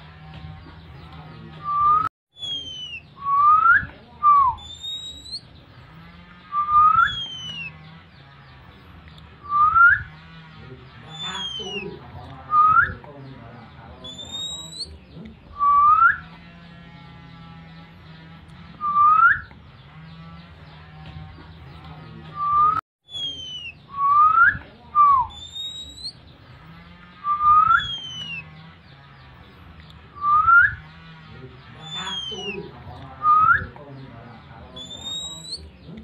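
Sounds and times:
short rising whistles: 0:06.5 - 0:07.7, 0:09.5 - 0:10.1.

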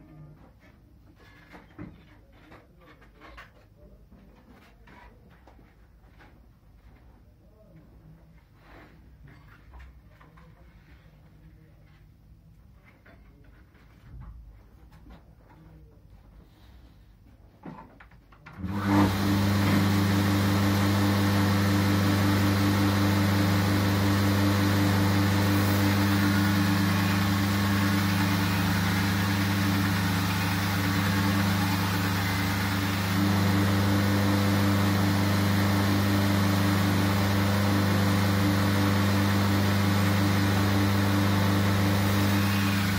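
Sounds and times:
belt grinder motor humming: 0:18.6 - 0:42.9.

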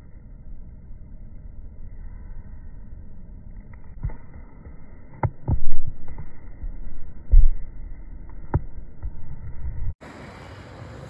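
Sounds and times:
faint hiss: 0:10.0 - 0:11.0.

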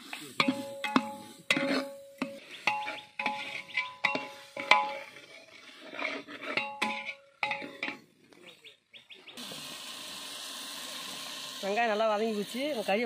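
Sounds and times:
ladle scraping frying onions: 0:00.0 - 0:08.0.

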